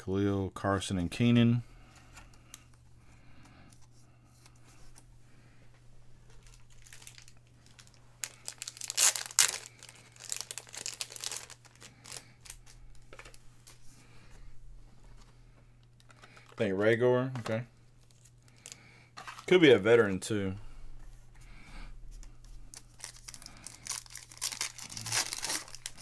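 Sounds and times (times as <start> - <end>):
steady low hum: 0.0 - 26.0
foil wrapper crinkling and tearing: 6.4 - 13.0, 22.7 - 26.0.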